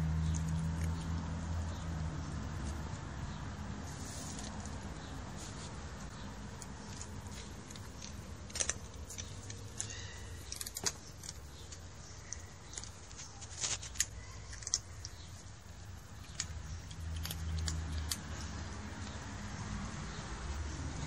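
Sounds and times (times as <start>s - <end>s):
cat crunching dry kibble: 0.0s - 2.9s, 6.3s - 19.2s.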